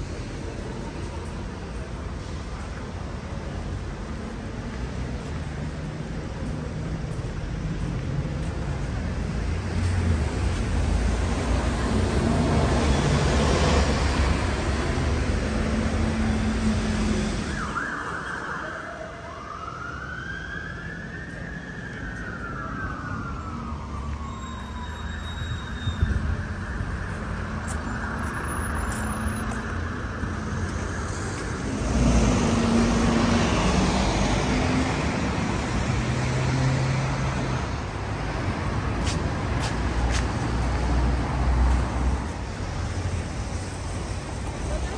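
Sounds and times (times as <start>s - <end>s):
road traffic passing: 0.0s - 44.9s
emergency siren wailing: 11.0s - 38.0s.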